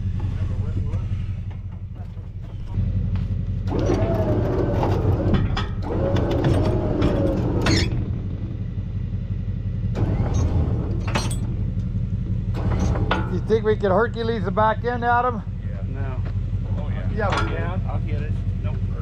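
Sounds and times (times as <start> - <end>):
clanks and knocks: 0.0 - 8.7, 9.9 - 14.3, 16.2 - 17.9
vehicle engine idling: 0.0 - 19.0.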